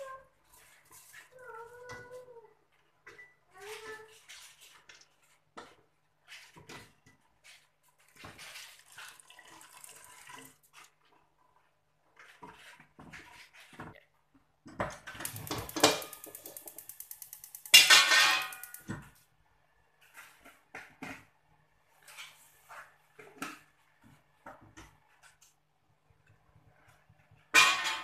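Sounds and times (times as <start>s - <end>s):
water dripping and splashing: 8.5s - 10.8s
fast run of clicks: 15.2s - 18.9s
utensils clinking against pot: 15.2s - 19.0s
ringing metallic clatter: 15.3s - 18.8s.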